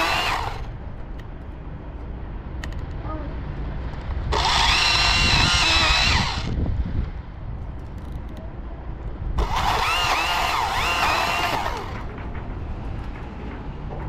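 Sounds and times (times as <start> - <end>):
electric chainsaw cutting: 0.0 - 0.7, 4.3 - 6.6, 9.4 - 12.0.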